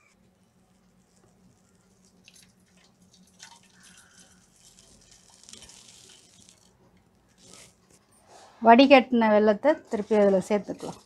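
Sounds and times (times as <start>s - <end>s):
syrup trickling and dripping: 0.8s - 6.8s.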